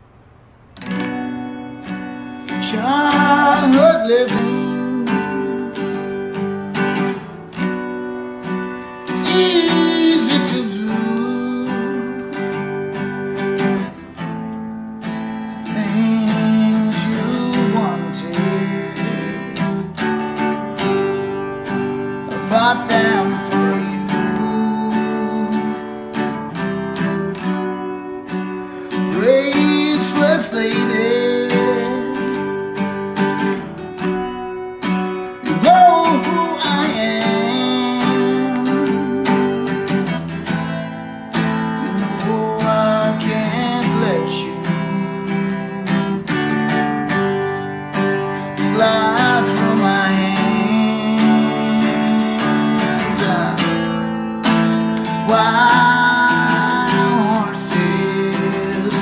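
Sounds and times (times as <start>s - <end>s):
acoustic guitar strumming: 0.0s - 59.0s
man singing: 2.5s - 6.3s, 9.0s - 12.8s, 15.2s - 26.4s, 28.8s - 32.8s, 35.3s - 46.5s, 48.2s - 59.0s.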